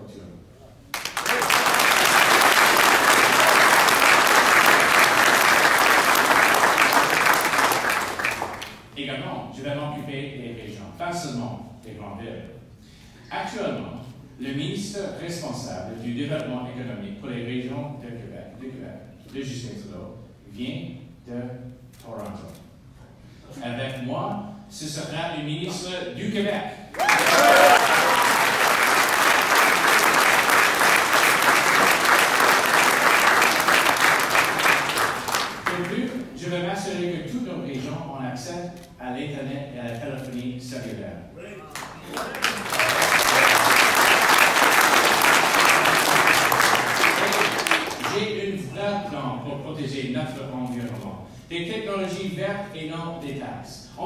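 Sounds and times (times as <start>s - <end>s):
large audience applauding: 0.9s - 8.9s, 27.0s - 35.9s, 41.7s - 48.2s.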